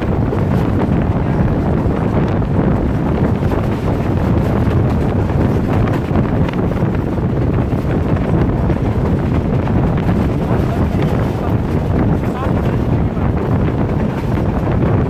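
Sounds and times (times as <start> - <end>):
train running on track: 0.0 - 15.0
wind buffeting microphone: 0.0 - 15.0.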